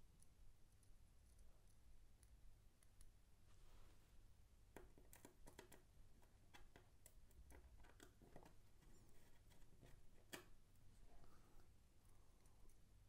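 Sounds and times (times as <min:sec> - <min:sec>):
small clicks and taps: 0:04.7 - 0:10.6.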